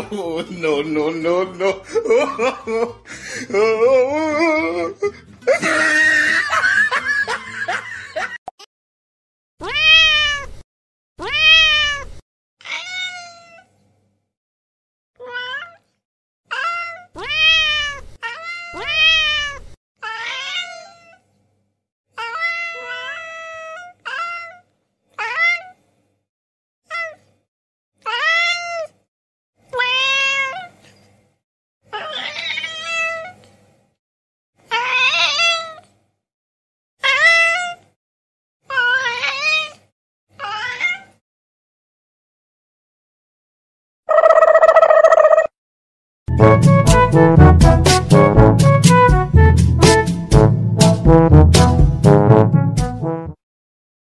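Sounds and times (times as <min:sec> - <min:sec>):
cat meowing: 0:09.6 - 0:10.6, 0:11.2 - 0:13.7, 0:15.2 - 0:15.8, 0:16.5 - 0:21.2, 0:22.2 - 0:25.8, 0:28.1 - 0:28.9, 0:29.8 - 0:30.7, 0:31.9 - 0:33.4, 0:34.7 - 0:35.8, 0:37.0 - 0:37.8, 0:38.7 - 0:39.8, 0:40.4 - 0:41.2.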